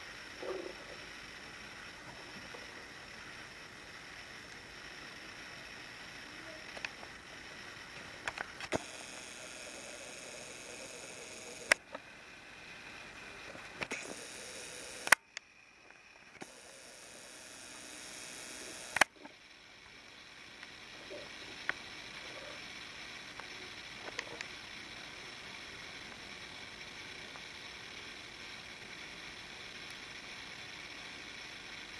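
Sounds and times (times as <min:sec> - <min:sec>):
sharp clicks: 0:08.0 - 0:12.0, 0:13.6 - 0:19.3.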